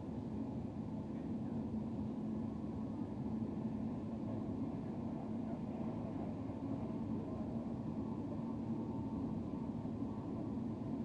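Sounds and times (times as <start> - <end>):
faint steady hum: 0.0 - 11.0
train rumble and rush: 0.0 - 11.0.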